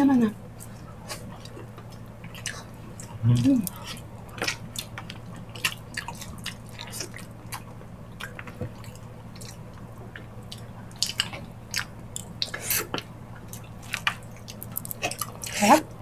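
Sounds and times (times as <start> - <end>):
wet chewing and lip smacks: 0.6 - 15.6.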